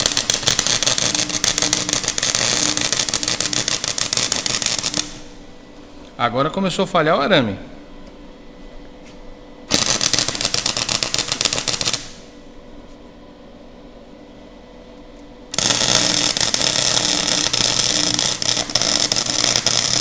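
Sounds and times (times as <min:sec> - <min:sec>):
welding arc crackling: 0:00.0 - 0:05.4, 0:09.7 - 0:12.4, 0:15.5 - 0:20.0.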